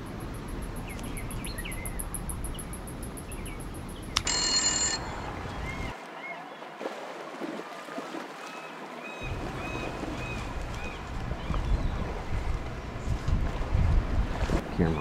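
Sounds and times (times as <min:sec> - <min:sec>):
wind rumbling on microphone: 0:09.2 - 0:15.0.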